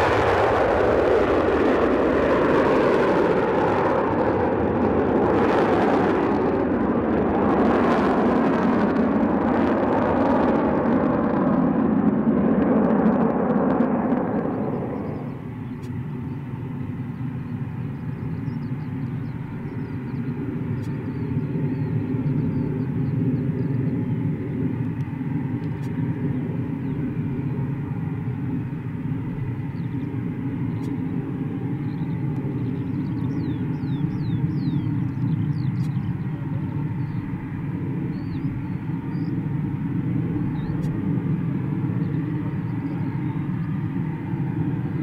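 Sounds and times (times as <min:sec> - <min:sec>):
jet aircraft departing: 0:00.0 - 0:45.0
jet engines running on runway: 0:00.0 - 0:45.0
faint bird chirps: 0:31.8 - 0:37.3, 0:38.1 - 0:39.4.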